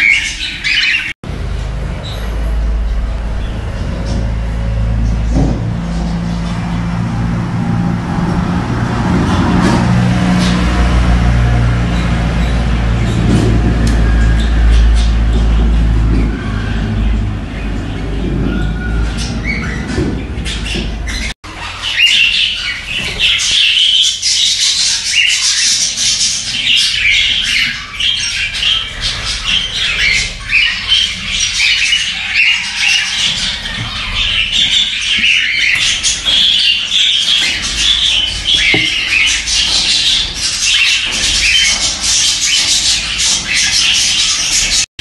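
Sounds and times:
bird chicks begging calls: 0.0s - 44.9s
low rumble: 1.2s - 21.3s.

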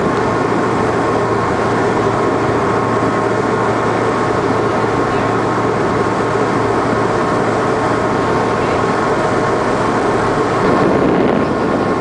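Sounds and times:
boat engine running: 0.0s - 12.0s
water rushing: 0.0s - 12.0s
wind rushing: 9.4s - 12.0s.

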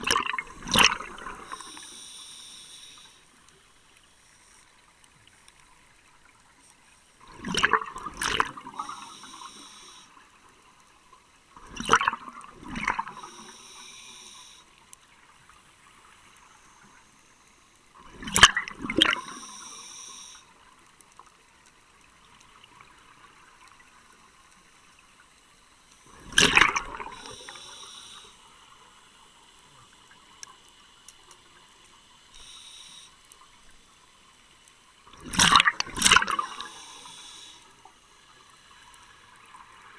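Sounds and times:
exhaled bubbles underwater: 0.0s - 1.8s, 7.3s - 9.5s, 11.6s - 13.5s, 18.1s - 19.5s, 26.1s - 27.6s, 35.1s - 36.8s
regulator hiss: 0.5s - 4.7s, 8.6s - 10.3s, 13.0s - 14.8s, 19.2s - 20.6s, 27.0s - 29.8s, 32.2s - 33.4s, 36.4s - 38.5s.

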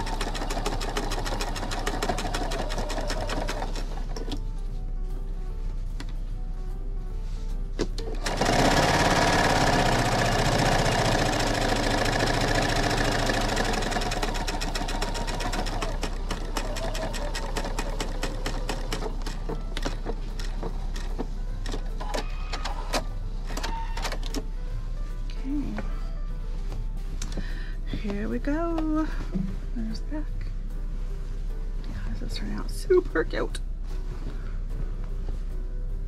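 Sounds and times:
sewing machine stitching: 0.0s - 4.4s, 8.0s - 24.4s.

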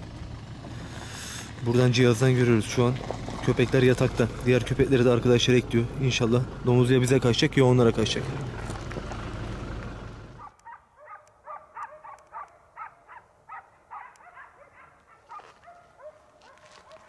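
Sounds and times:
distant dogs barking: 10.3s - 17.0s.

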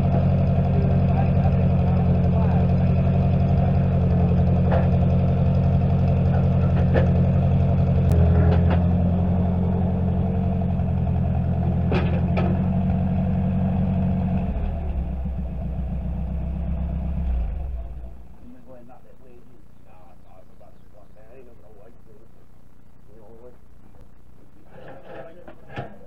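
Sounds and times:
engine running: 0.0s - 26.0s.

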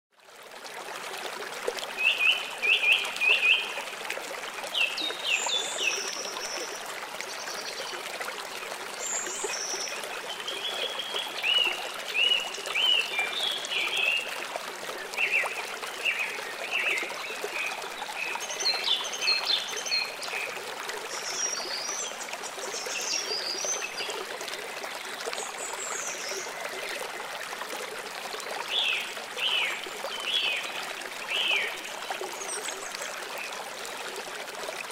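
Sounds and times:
trickling rush of water: 0.1s - 34.9s.

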